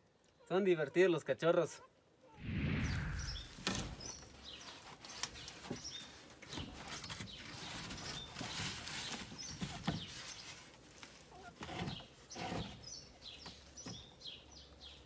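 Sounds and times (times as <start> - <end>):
straw rustling and light knocks: 3.7 - 14.2.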